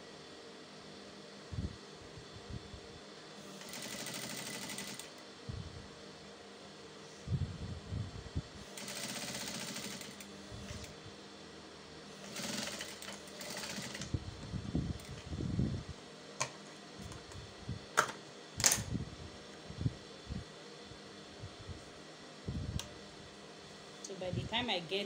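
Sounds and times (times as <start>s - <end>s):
sewing machine stitching: 3.5s - 5.1s, 8.7s - 10.9s, 12.2s - 14.1s.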